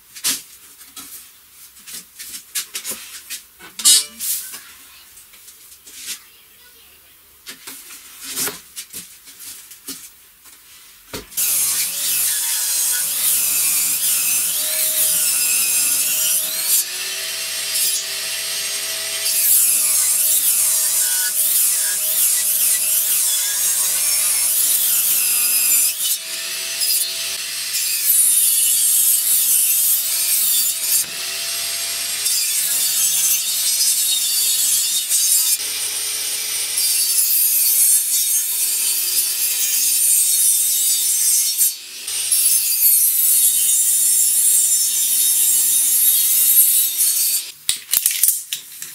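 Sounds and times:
table saw cutting wood: 0:11.4 - 0:47.5.

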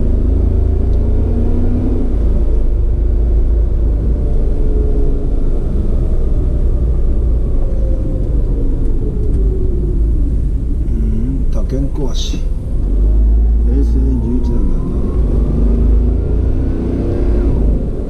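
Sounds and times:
faint engine drone: 0:00.0 - 0:18.0
wind and road noise rumble: 0:00.0 - 0:18.0.

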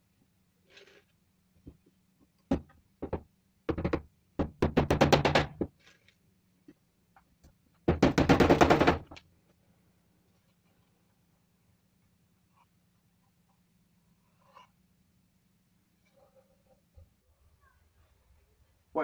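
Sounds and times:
hammer driving nails into wood: 0:02.5 - 0:05.7, 0:07.9 - 0:09.2.

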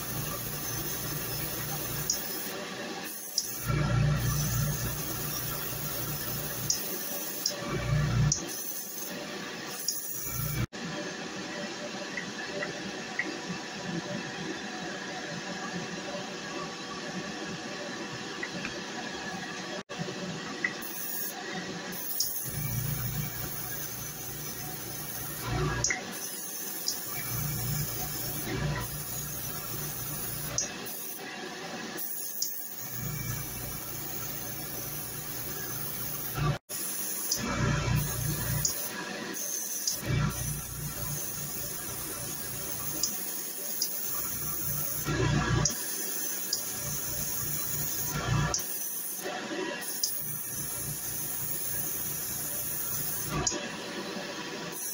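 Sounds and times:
airbrush hissing: 0:00.0 - 0:07.6, 0:08.3 - 0:10.7, 0:20.8 - 0:31.2, 0:32.0 - 0:53.6.

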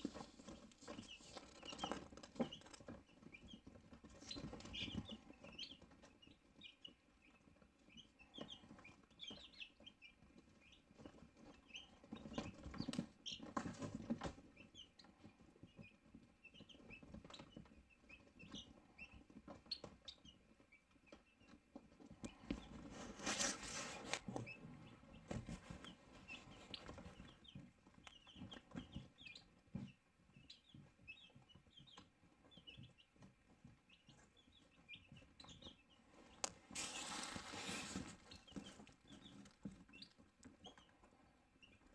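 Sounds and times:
rustling: 0:00.0 - 0:03.0, 0:22.2 - 0:27.4, 0:36.0 - 0:40.5
chickens chirping and clucking: 0:00.0 - 0:41.9
chickens scuffling: 0:00.0 - 0:41.9.

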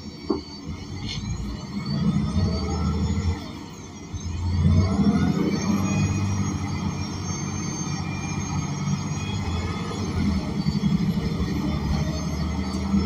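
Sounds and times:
bus engine low rumble: 0:00.0 - 0:13.0.

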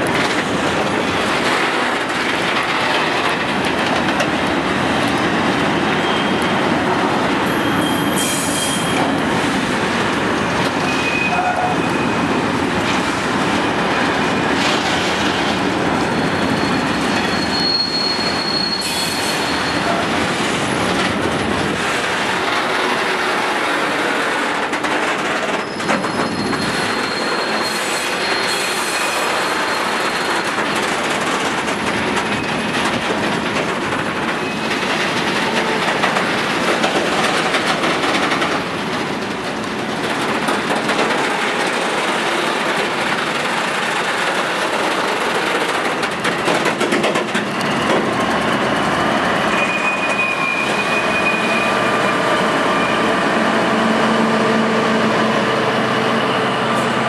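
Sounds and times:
train wheels rumbling on rails: 0:00.0 - 0:57.0
faint wheel squeal: 0:16.1 - 0:20.0.

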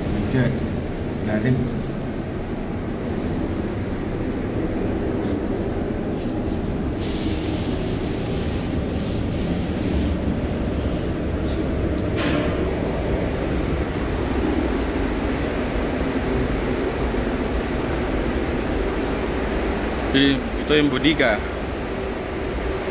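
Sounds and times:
low rumble of ship machinery: 0:00.0 - 0:22.9.

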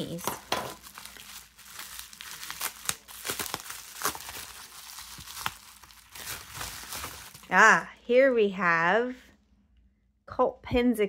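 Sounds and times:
bubble wrap crinkling and crackling: 0:00.0 - 0:07.8.

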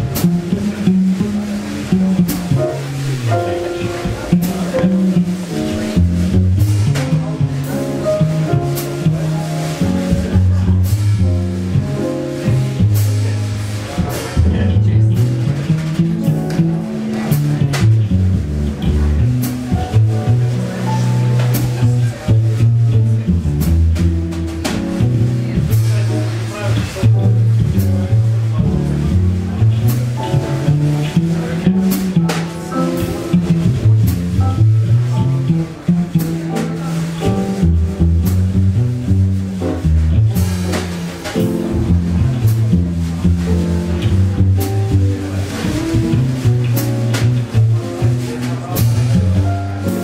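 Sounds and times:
plucked double bass: 0:00.0 - 0:50.0.

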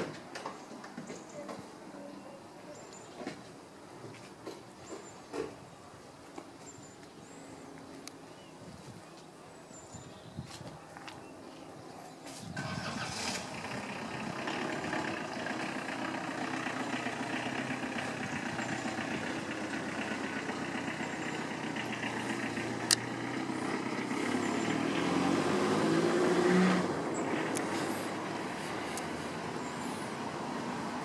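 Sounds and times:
car engine idling: 0:12.6 - 0:31.0.

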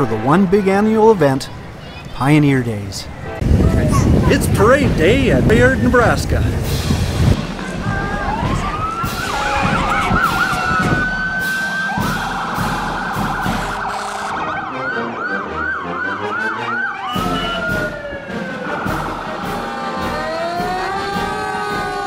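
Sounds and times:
fire engine siren: 0:08.2 - 0:22.0.

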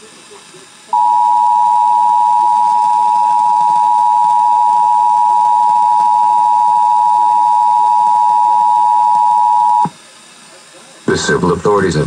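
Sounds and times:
two-tone alarm signal: 0:00.9 - 0:09.9.

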